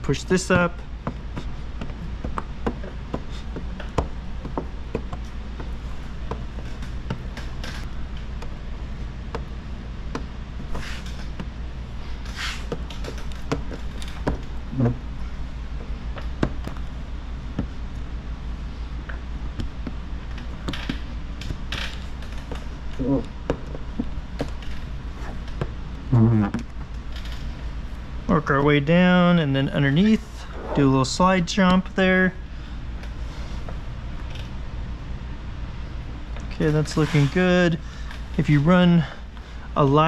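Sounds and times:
steady low hum: 0:00.0 - 0:40.0
hissing swishes: 0:30.3 - 0:31.0.

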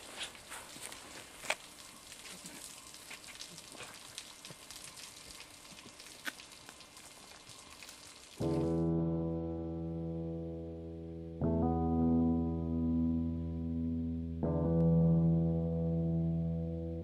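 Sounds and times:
footsteps through dry twigs: 0:00.0 - 0:03.4
faint rustle: 0:00.0 - 0:08.6
music: 0:08.4 - 0:17.0.

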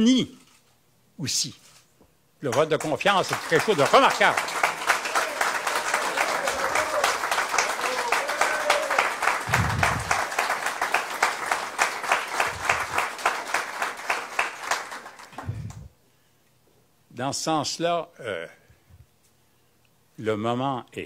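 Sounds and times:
audience rhythmic applause: 0:02.4 - 0:15.9.

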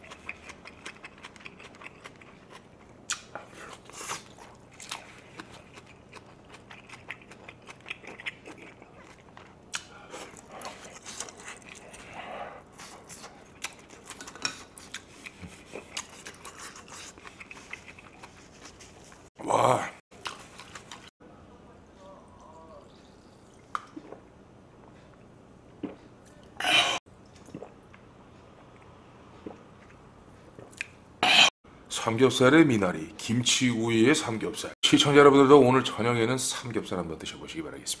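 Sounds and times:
chewing and crunching: 0:00.0 - 0:19.3, 0:20.1 - 0:21.1.

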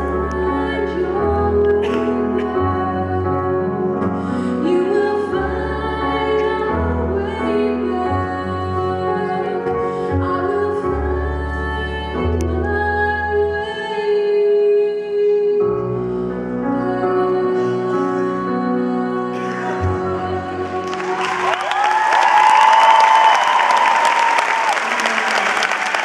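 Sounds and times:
instrumental accompaniment with bass: 0:00.0 - 0:14.0
woman singing into microphone: 0:00.0 - 0:16.0, 0:16.6 - 0:21.6.

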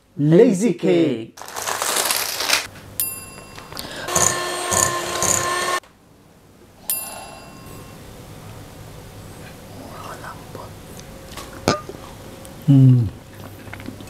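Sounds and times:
bell-like ding: 0:03.0 - 0:04.0, 0:06.9 - 0:08.1
loud whirring: 0:04.0 - 0:05.8.

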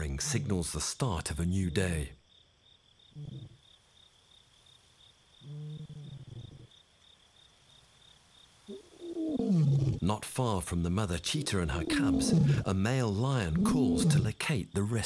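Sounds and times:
high insect trill: 0:00.0 - 0:15.0
lion roaring in distance: 0:09.0 - 0:10.0, 0:11.7 - 0:12.7, 0:13.5 - 0:14.3.

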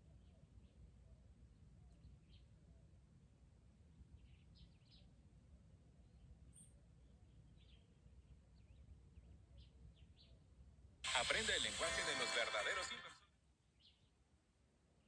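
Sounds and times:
faint bird chirps: 0:00.0 - 0:03.0, 0:04.0 - 0:05.2, 0:05.9 - 0:10.5, 0:13.7 - 0:14.2.

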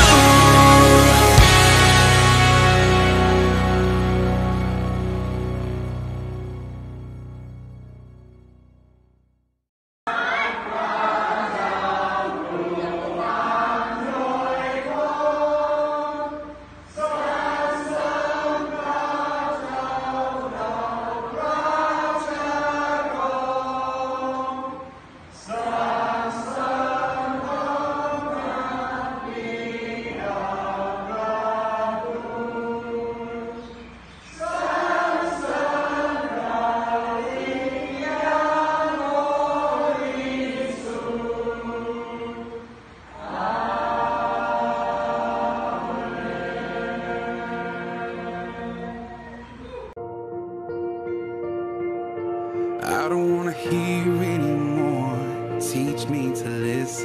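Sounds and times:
group singing in unison: 0:00.0 - 0:04.9, 0:10.1 - 0:49.4.

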